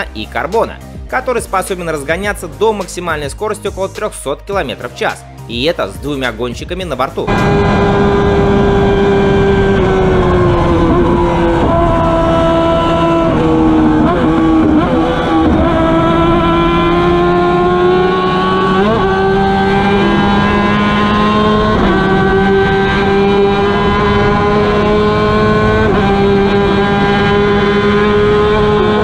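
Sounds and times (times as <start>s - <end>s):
motorcycle engine at high revs: 7.3s - 29.0s
wind and road rush: 7.3s - 29.0s.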